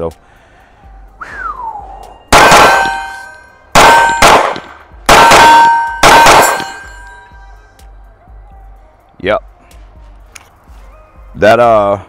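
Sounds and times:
metallic ringing: 0:02.1 - 0:04.3, 0:05.1 - 0:07.6
pistol shots: 0:02.3 - 0:07.0.

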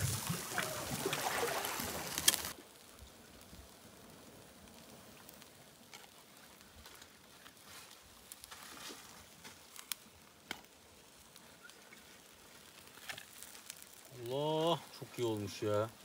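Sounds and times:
quiet hiss: 0:00.0 - 0:16.0
faint clicks and ticks: 0:02.2 - 0:03.7.

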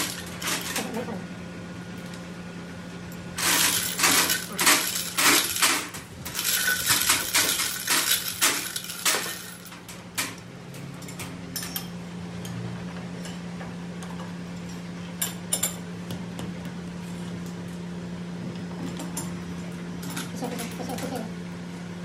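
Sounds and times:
small metal pieces clinking: 0:00.0 - 0:00.9, 0:03.4 - 0:09.8
steady low hum: 0:00.0 - 0:22.0.

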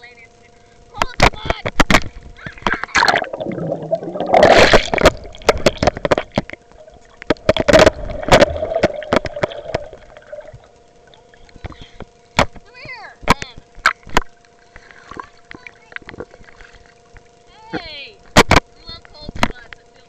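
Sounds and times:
water splashing and gurgling: 0:01.8 - 0:12.0, 0:13.8 - 0:17.4.

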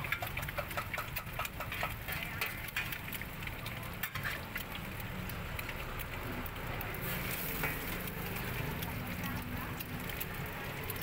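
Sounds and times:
egg sizzling in hot oil: 0:00.0 - 0:11.0.

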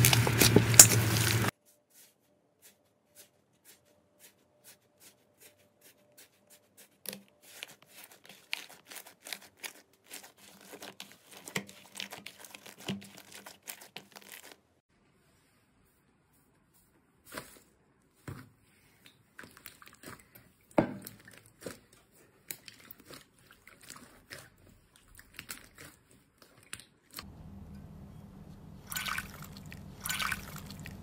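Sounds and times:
slime squelching: 0:04.6 - 0:14.8, 0:17.2 - 0:27.3, 0:28.8 - 0:31.0
steady low hum: 0:27.2 - 0:31.0.

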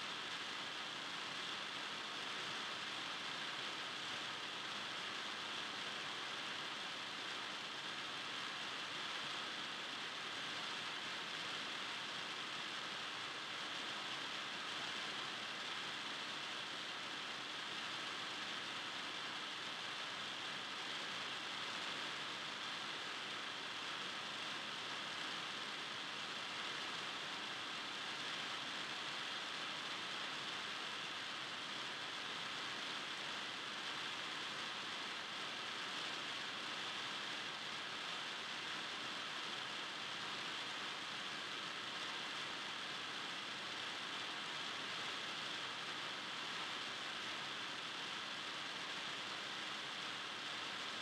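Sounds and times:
steady hiss: 0:00.0 - 0:51.0.

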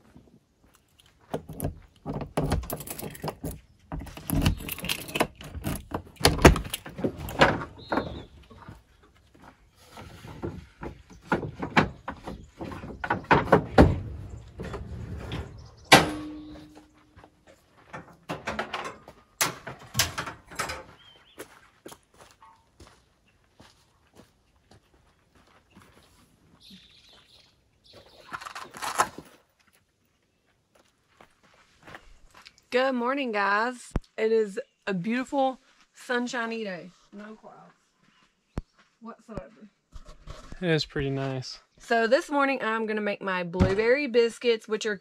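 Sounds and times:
camping gear knocking and clattering: 0:01.0 - 0:21.2.

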